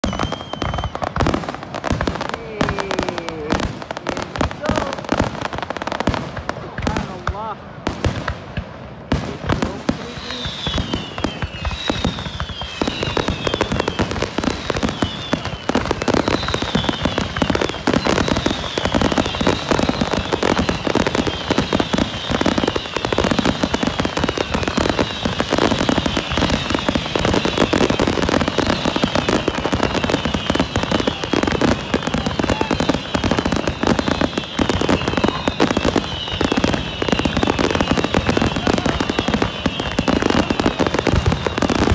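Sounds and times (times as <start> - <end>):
whistling firework shells: 0.0 - 1.4, 10.0 - 41.9
fireworks bangs and crackling: 0.0 - 41.9.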